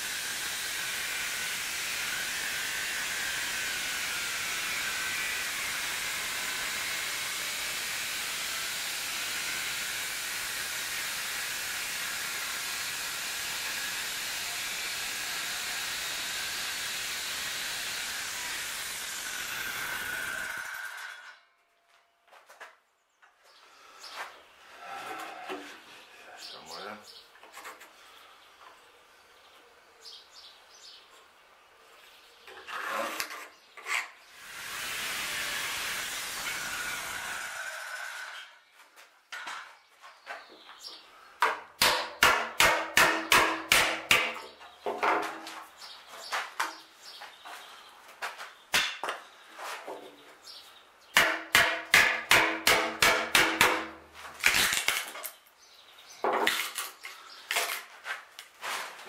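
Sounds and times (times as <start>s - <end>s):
hammer striking chisel into wood: 41.4s - 44.5s, 51.2s - 54.0s.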